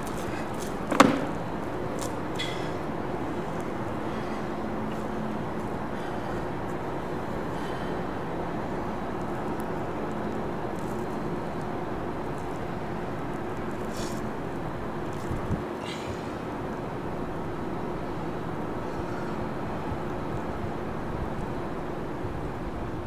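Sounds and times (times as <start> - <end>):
steady background hum: 0.0 - 23.0
slipper knocking on plywood: 0.9 - 1.4.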